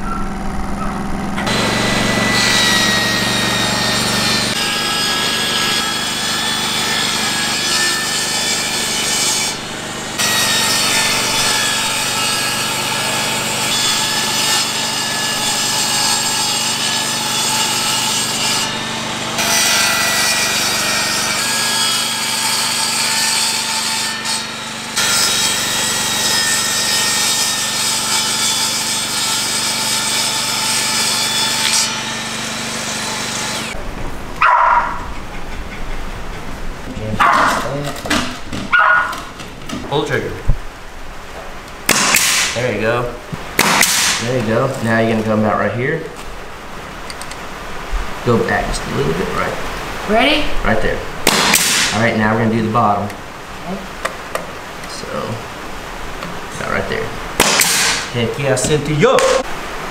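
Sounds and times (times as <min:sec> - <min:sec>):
power saw cutting plywood: 0:00.0 - 0:33.8, 0:41.8 - 0:45.5, 0:51.2 - 0:53.0, 0:57.3 - 0:59.5.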